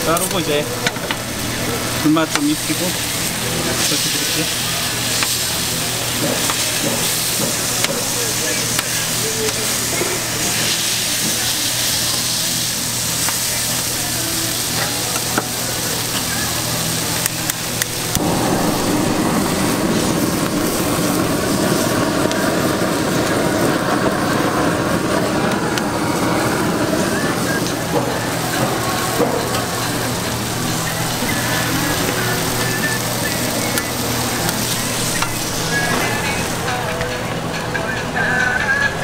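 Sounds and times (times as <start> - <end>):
meat patty sizzling on griddle: 0.0 - 37.0
blade clicking on griddle: 0.1 - 18.6.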